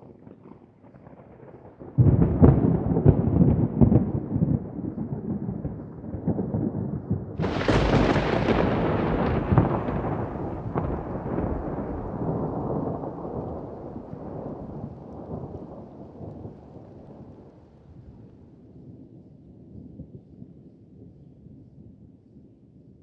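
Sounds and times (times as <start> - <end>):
thunder rumbling: 0.2 - 17.5
sharp thunder crack: 6.8 - 14.6.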